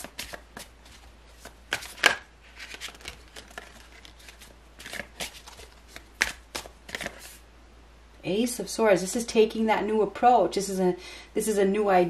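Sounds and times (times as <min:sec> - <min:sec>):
cards being shuffled: 0:00.0 - 0:07.4.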